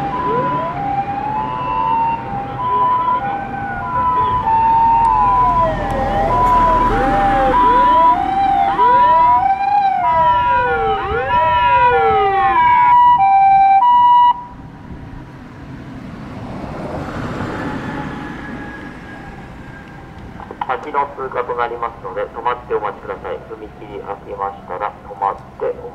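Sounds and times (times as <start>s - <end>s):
ambulance siren two-tone hi-lo: 0.0s - 14.7s
wailing siren glides: 0.0s - 15.0s, 16.8s - 25.9s
traffic noise: 0.0s - 25.9s.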